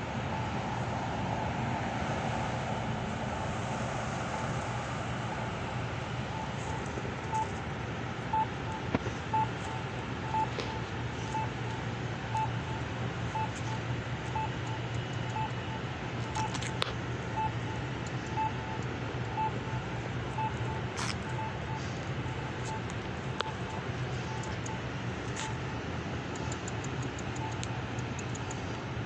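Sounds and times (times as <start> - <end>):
low hum of traffic: 0.0 - 29.0
short electronic beeps: 6.2 - 7.6, 8.3 - 25.7, 26.4 - 27.7.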